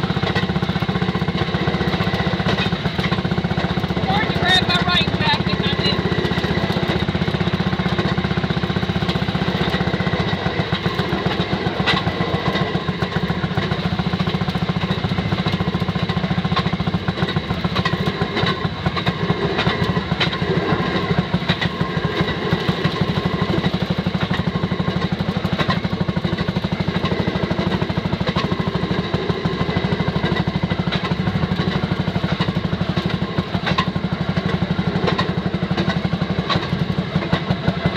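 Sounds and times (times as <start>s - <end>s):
small engine putt-putt: 0.0s - 37.9s
wheels clicking on rails: 0.0s - 37.9s.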